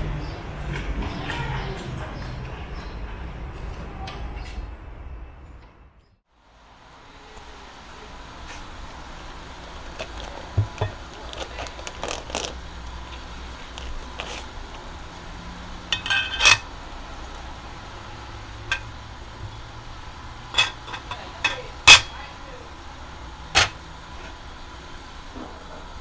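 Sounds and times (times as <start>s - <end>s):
metal parts clicking and knocking: 15.9s - 16.7s
metallic clink: 15.9s - 16.7s.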